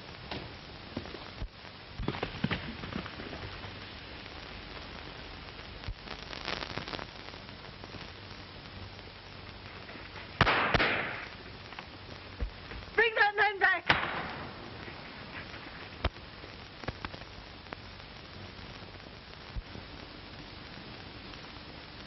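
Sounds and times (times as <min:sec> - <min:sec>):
old film soundtrack hiss: 0:00.0 - 0:22.0
gunshot crack: 0:10.4 - 0:11.3, 0:13.9 - 0:14.8.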